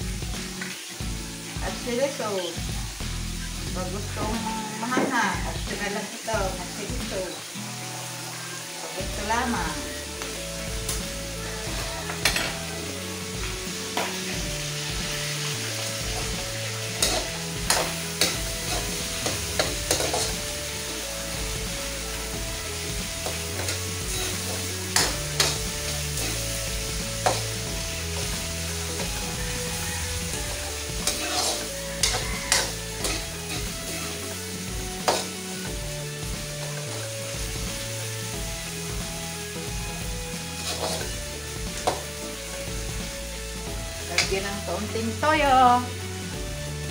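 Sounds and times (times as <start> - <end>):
food sizzling in a pan: 0.0 - 46.9
metal utensil scraping a pan: 12.0 - 12.9, 15.4 - 21.3, 23.2 - 35.7, 40.6 - 41.2.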